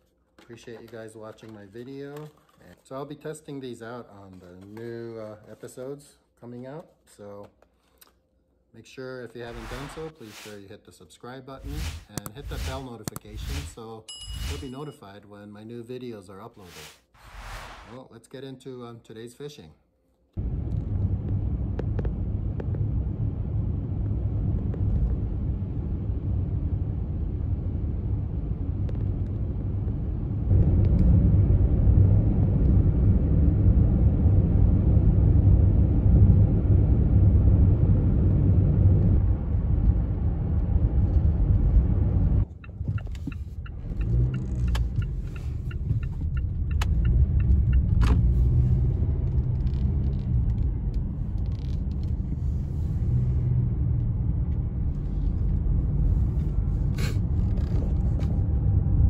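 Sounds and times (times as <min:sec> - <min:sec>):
road and tyre rumble: 0:20.4 - 0:59.0.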